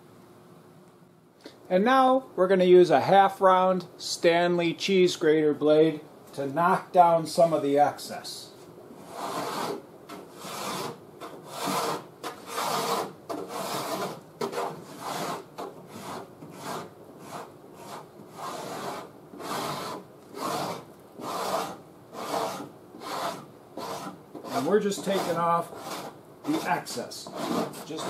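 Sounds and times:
rasp blade scraping filler: 0:09.0 - 0:28.0.

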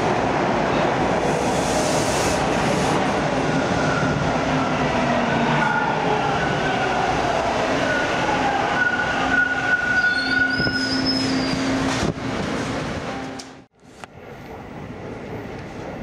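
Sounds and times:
train wheels rumbling on rail: 0:00.0 - 0:16.0
high wheel squeal: 0:08.8 - 0:11.8.

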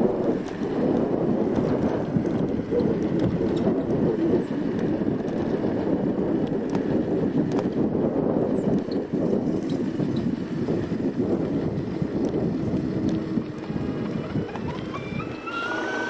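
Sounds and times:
electric scooter rattling: 0:00.0 - 0:16.0
wind on microphone: 0:00.0 - 0:16.0.

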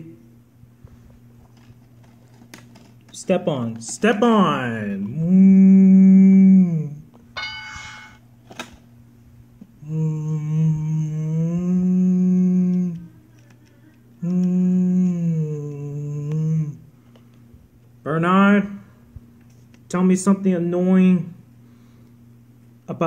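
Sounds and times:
person humming: 0:05.0 - 0:07.1, 0:09.7 - 0:17.0.

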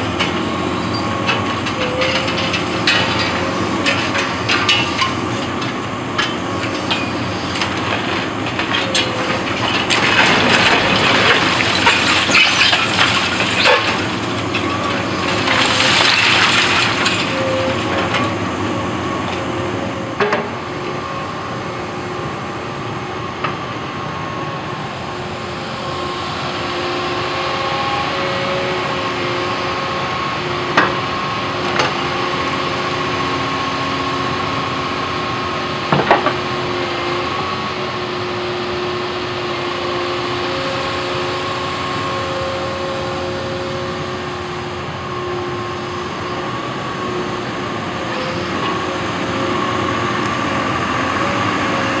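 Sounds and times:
excavator engine and hydraulics whining: 0:00.0 - 0:52.0.

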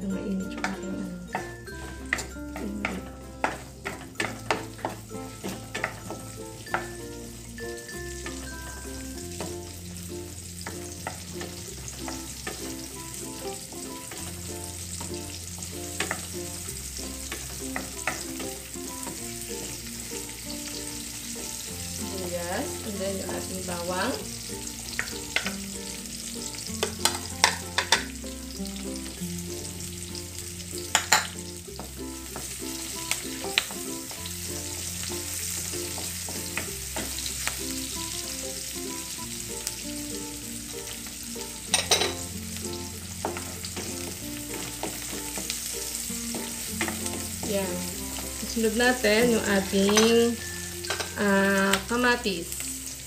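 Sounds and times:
onions sizzling in oil: 0:00.0 - 0:53.0
wooden spatula scraping a pan: 0:01.4 - 0:07.0.

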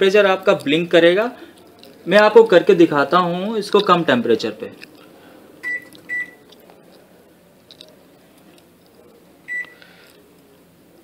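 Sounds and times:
microwave control panel beeping: 0:05.6 - 0:06.4, 0:09.5 - 0:09.8.

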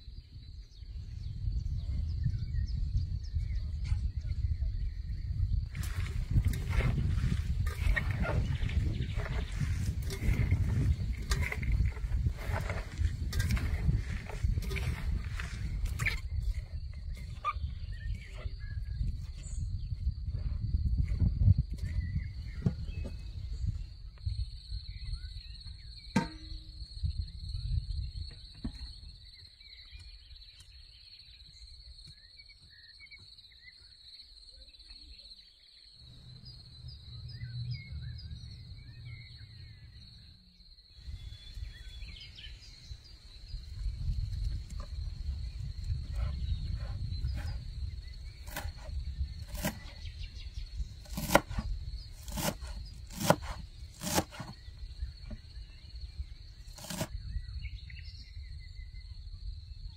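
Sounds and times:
faint chirps: 0:00.0 - 0:59.9
low rumble: 0:36.0 - 0:49.4.

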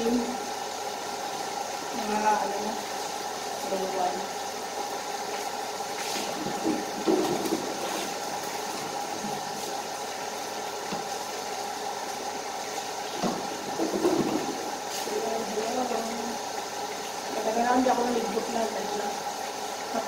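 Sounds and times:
water running: 0:00.0 - 0:20.0.

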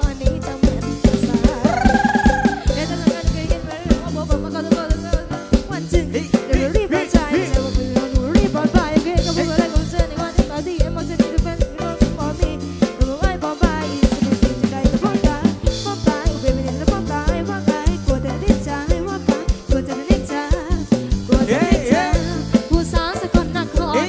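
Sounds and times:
drum kit beat: 0:00.0 - 0:24.0
wavering lead melody: 0:01.6 - 0:03.0.

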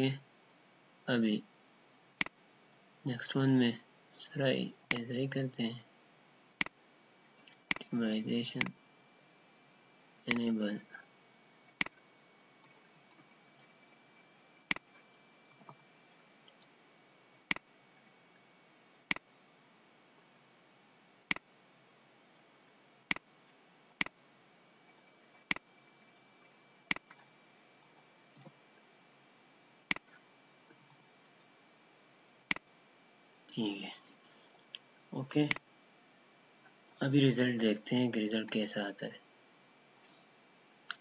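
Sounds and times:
faint steady hiss: 0:00.0 - 0:41.0
computer mouse clicking: 0:07.4 - 0:07.9, 0:26.9 - 0:27.2.

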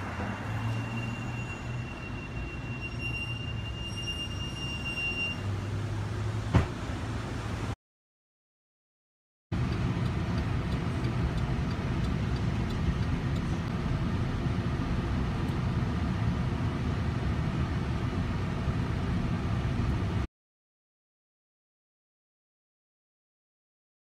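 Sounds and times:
car road and engine noise: 0:00.0 - 0:07.8, 0:09.5 - 0:20.3.

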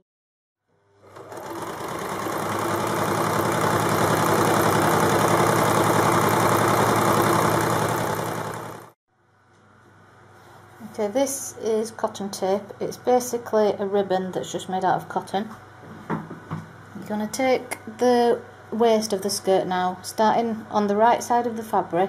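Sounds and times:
electric sewing machine running: 0:00.9 - 0:09.0.

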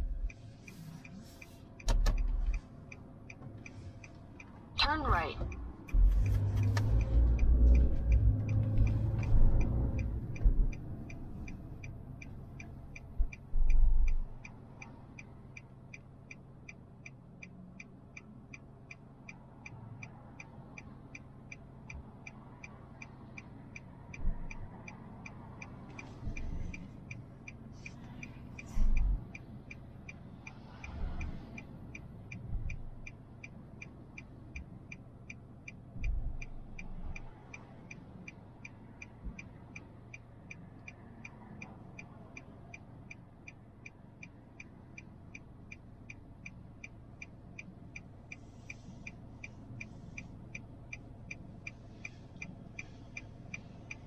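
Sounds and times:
low hum: 0:00.0 - 0:02.7, 0:04.8 - 0:14.5
steady ticking: 0:00.0 - 0:54.0
dull low thuds: 0:05.9 - 0:06.3.

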